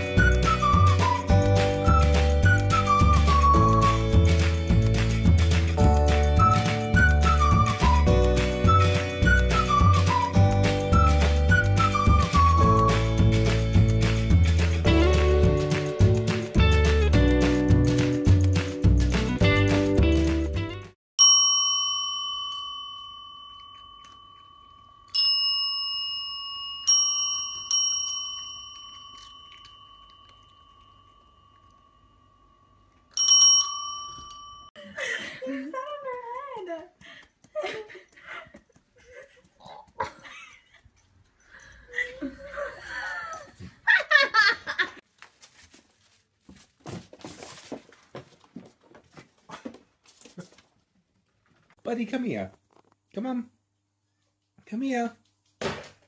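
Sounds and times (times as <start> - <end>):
service bell dings: 21.2 - 32.0, 33.1 - 34.8.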